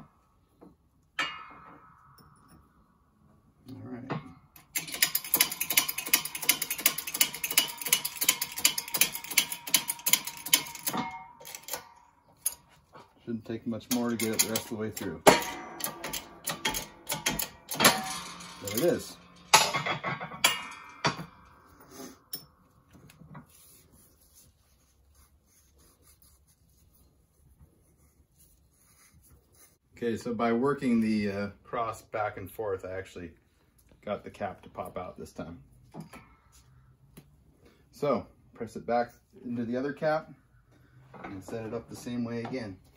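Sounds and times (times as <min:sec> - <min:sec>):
light metal clinks and knocks: 0:00.6 - 0:23.8
rapid mechanical clicking: 0:04.6 - 0:11.8
faint handling rubs: 0:23.4 - 0:29.8.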